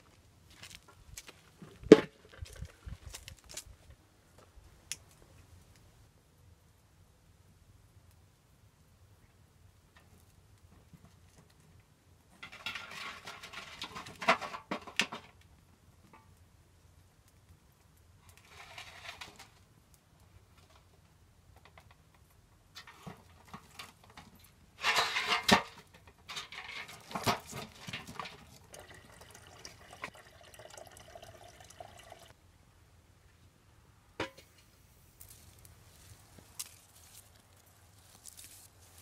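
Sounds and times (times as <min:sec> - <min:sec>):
firewood knocking in metal basin: 0:24.8 - 0:28.8, 0:34.2 - 0:34.6.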